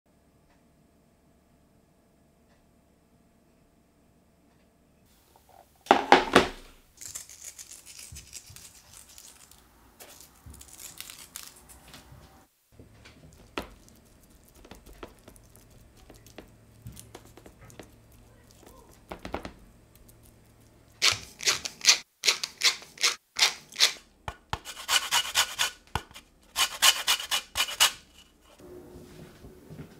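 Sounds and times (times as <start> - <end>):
hand rubbing seasoning into chicken: 7.0 - 11.9, 13.3 - 19.0
salt flakes crackling: 7.0 - 12.0, 13.1 - 21.4.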